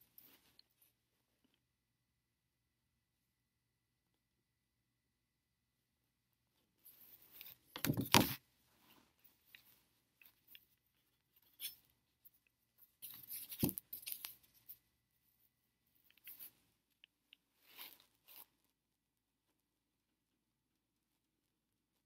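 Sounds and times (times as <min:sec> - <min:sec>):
cardboard rustling and scraping: 0:06.9 - 0:08.4.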